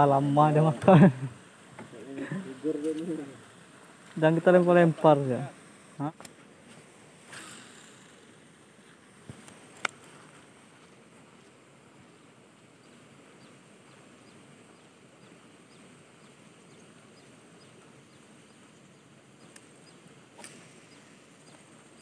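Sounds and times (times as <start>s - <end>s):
faint outdoor hiss: 0.0s - 22.0s
bird chirping: 12.2s - 22.0s.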